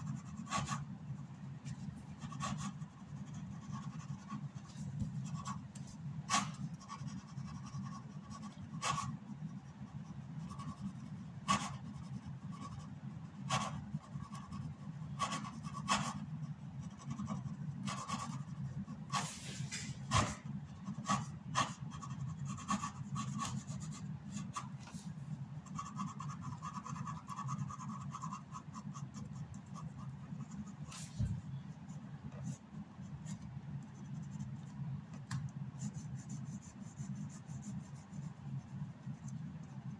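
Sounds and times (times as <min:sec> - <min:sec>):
pen scratching on paper: 0:00.0 - 0:00.9, 0:01.6 - 0:19.5, 0:20.1 - 0:25.0, 0:25.6 - 0:34.7, 0:35.8 - 0:39.9
steady low hum: 0:00.0 - 0:39.9.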